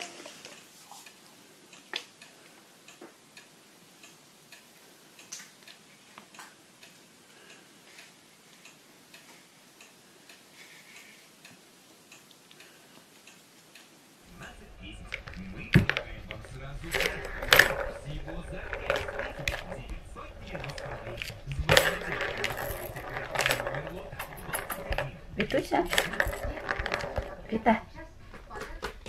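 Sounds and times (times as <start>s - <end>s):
kittens playing light clicks and taps: 14.4s - 29.0s.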